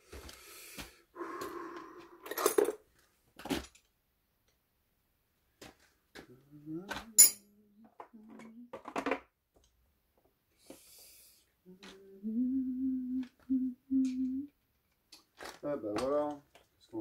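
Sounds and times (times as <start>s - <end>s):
man humming low note: 6.3s - 8.7s, 11.7s - 14.5s.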